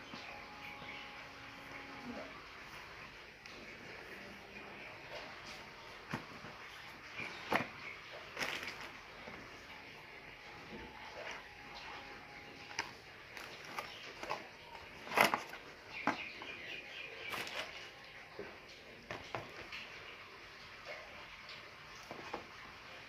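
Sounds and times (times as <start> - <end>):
cardboard box handling: 12.7 - 16.4.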